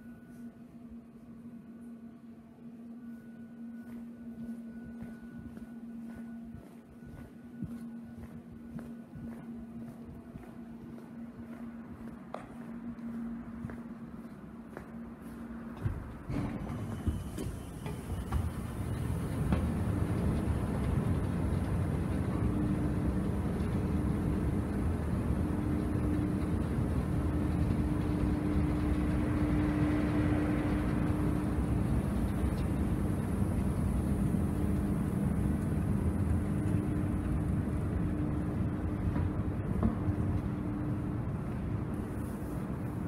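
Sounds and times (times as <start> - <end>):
escalator hum: 0.0 - 43.0
escalator rumble: 15.8 - 43.0.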